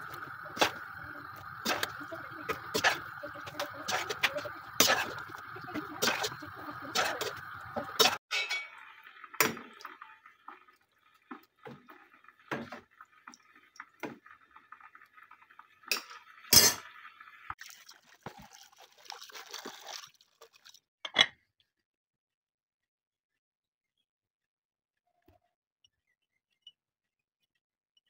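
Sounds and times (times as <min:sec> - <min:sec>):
water sloshing and dripping: 0:00.0 - 0:20.9
clinks and knocks of dishes: 0:08.0 - 0:08.8.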